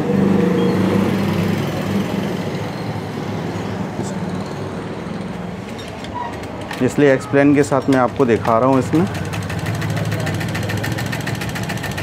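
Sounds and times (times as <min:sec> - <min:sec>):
sewing machine running: 0:08.0 - 0:12.0.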